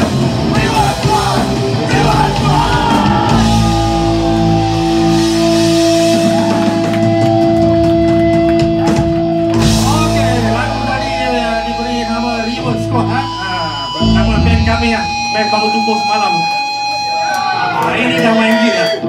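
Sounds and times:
drums crashing: 0.0 - 12.9, 14.1 - 15.9
live rock band playing: 0.0 - 19.0.

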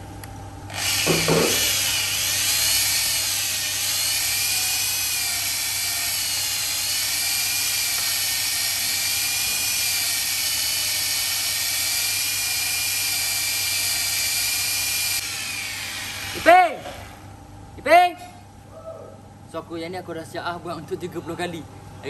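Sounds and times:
electric drill whining: 0.7 - 16.5.

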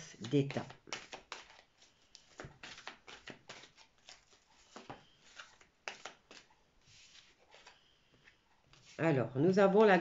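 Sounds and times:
cards being shuffled: 0.0 - 7.8.

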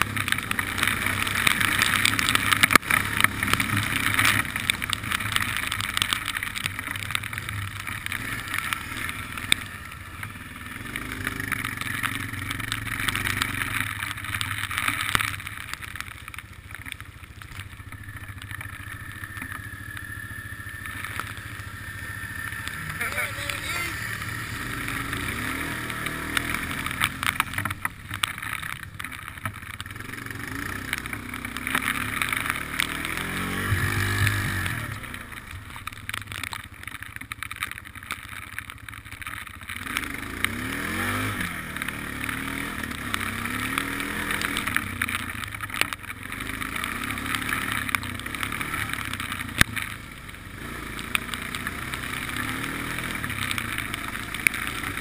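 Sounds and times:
quad engine revving: 8.1 - 13.8, 20.2 - 27.6, 30.0 - 35.4, 39.8 - 44.8, 46.3 - 49.6, 50.5 - 55.0.

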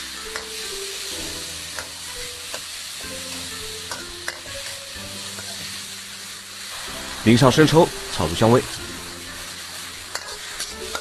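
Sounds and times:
food sizzling in hot oil: 0.0 - 11.0
metal spatula scraping pan: 10.0 - 11.0.

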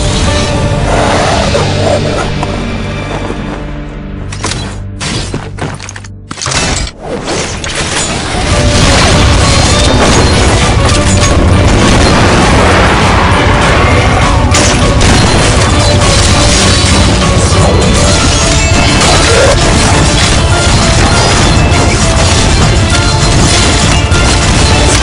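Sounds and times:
action music: 0.0 - 25.0
booming shots and impacts: 7.5 - 25.0.

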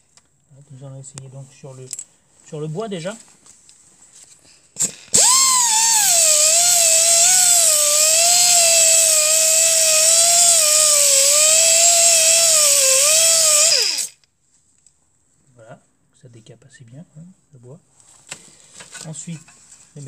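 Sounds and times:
pneumatic sander whine: 4.8 - 14.2.

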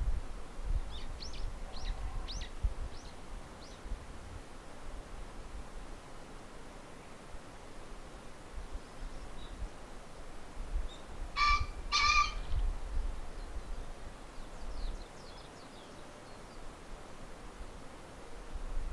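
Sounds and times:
pheasant crowing: 11.4 - 12.6.

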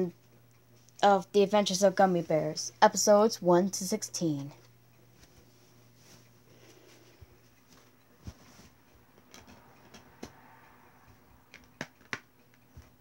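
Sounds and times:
low room hiss: 0.0 - 13.0.

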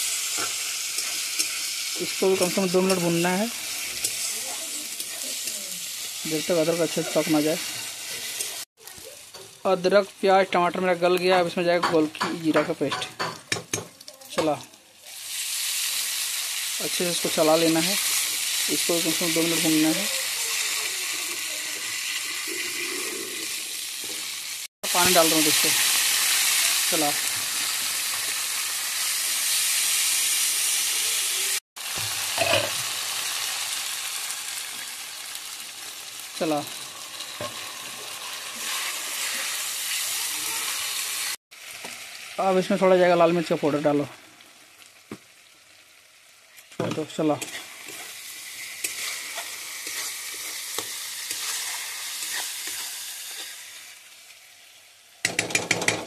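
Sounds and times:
masala sizzling in oil: 0.0 - 56.0
steel spatula scraping pan: 47.4 - 53.5.

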